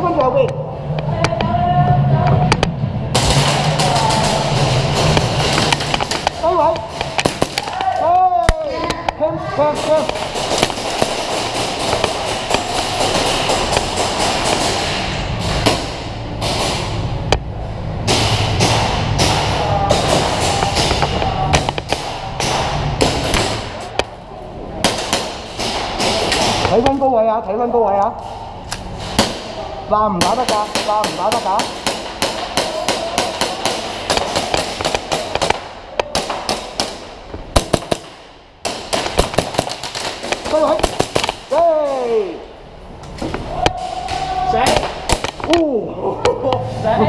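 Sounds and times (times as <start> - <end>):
low rumble: 0.0 - 7.7, 8.3 - 26.8
airsoft gunfire cracks: 30.2 - 41.5.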